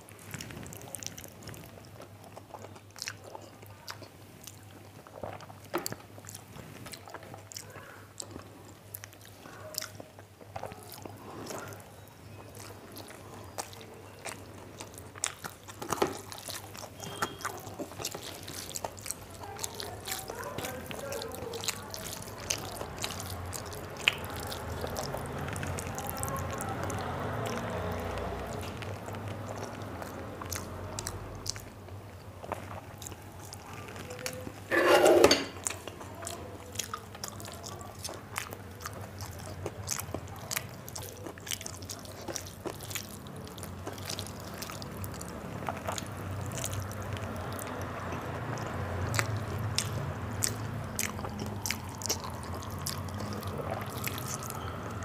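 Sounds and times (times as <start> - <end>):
chewing: 0.0 - 55.0
rice squishing by hand: 15.4 - 30.0.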